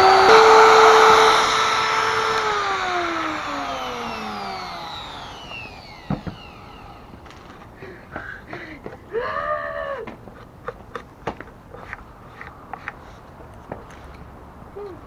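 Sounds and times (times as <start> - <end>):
trim router motor spinning down: 0.0 - 7.6.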